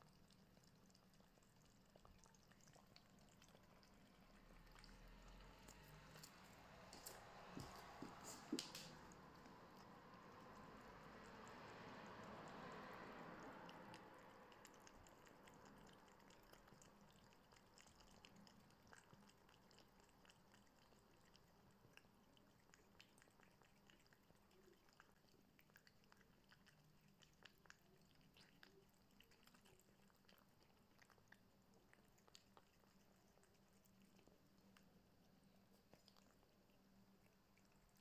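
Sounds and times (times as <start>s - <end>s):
cats chewing and licking food: 0.0s - 38.0s.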